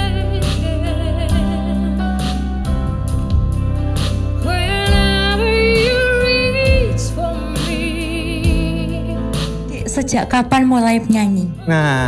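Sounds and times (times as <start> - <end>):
woman singing with vibrato: 4.4 - 9.2.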